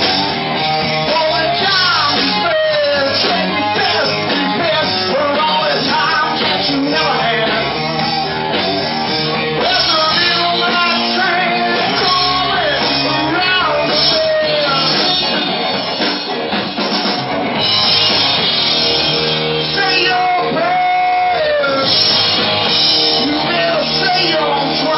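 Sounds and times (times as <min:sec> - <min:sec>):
drum kit: 0:00.0 - 0:24.9
electric bass: 0:00.0 - 0:24.9
electric guitars: 0:00.0 - 0:24.9.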